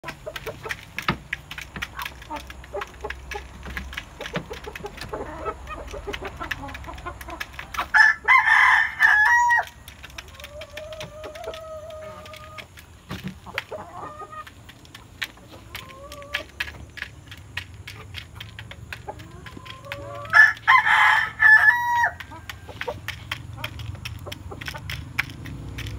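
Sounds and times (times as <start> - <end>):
chickens clucking: 0.0 - 25.9
chickens pecking grain: 0.0 - 25.9
rooster crowing: 7.9 - 9.7, 20.3 - 22.2.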